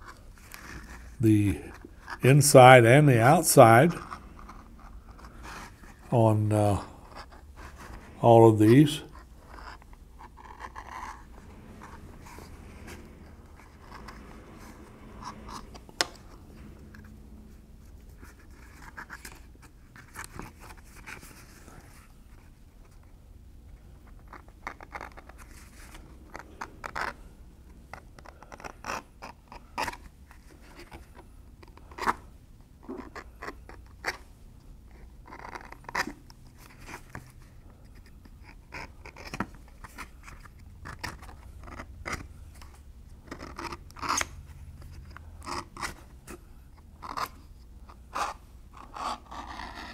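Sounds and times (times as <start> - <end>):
edge beveler scraping leather: 48.1 - 49.9.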